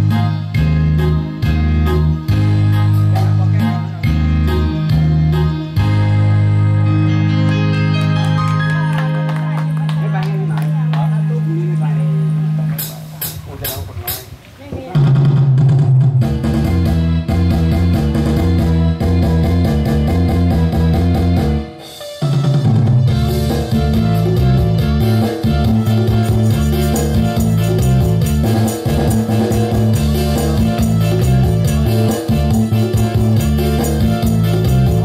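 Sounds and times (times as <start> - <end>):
guitar: 0.0 - 13.4, 16.2 - 35.0
bass line: 0.0 - 35.0
drum beat: 12.8 - 21.4, 22.0 - 35.0.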